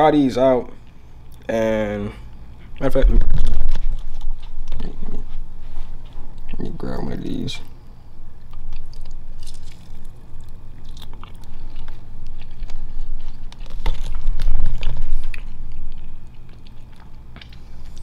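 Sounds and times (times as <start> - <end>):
person biting and chewing: 8.4 - 18.0.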